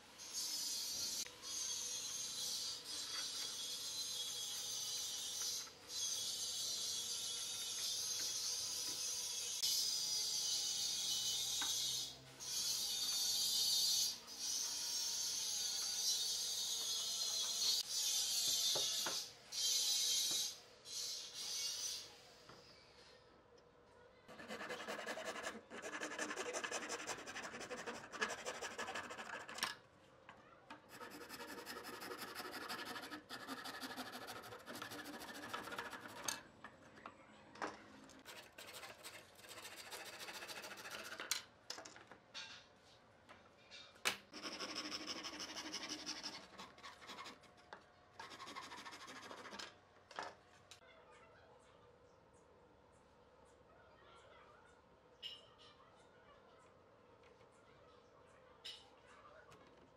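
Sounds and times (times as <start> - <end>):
handsaw cutting wood: 24.3 - 29.6, 30.9 - 36.2, 44.4 - 47.4.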